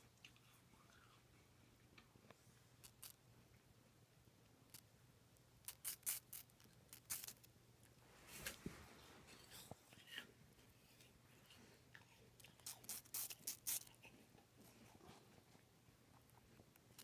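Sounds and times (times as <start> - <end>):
rabbit chewing apple crunches: 2.8 - 3.2, 5.6 - 7.5, 11.5 - 15.5.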